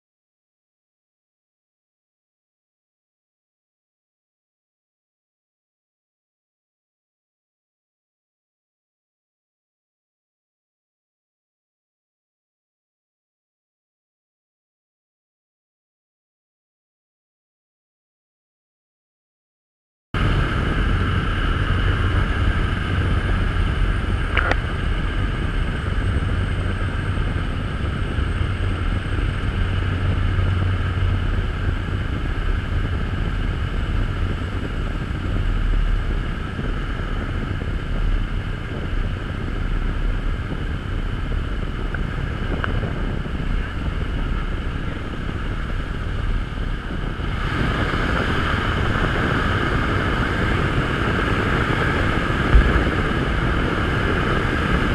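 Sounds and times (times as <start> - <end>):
propeller plane engine drone: 20.2 - 54.9.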